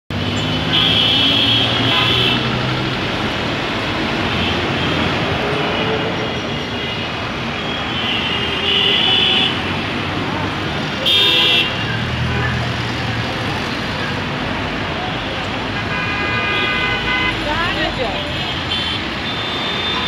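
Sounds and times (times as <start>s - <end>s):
road traffic rumble: 0.1s - 20.0s
vehicle horns honking: 0.4s - 2.6s, 6.4s - 9.8s, 11.0s - 12.6s, 15.1s - 20.0s.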